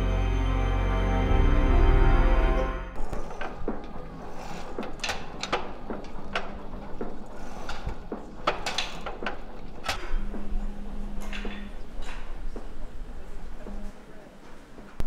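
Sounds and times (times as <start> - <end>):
gym weight machines clanking: 3.0 - 13.8.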